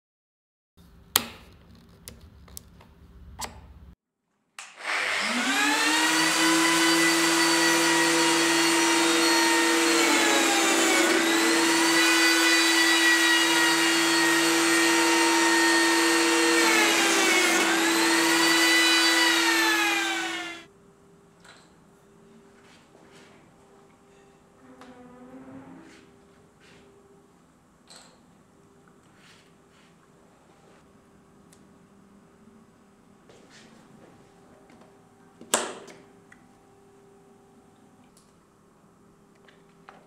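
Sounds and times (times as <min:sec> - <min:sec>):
joiner motor whining: 0:04.8 - 0:20.7.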